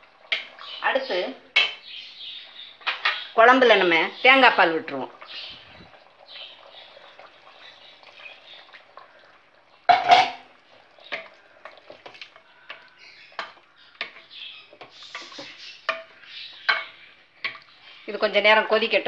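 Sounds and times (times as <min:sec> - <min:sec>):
wooden ladle tapping a pot: 0:01.6 - 0:01.8, 0:11.1 - 0:17.7.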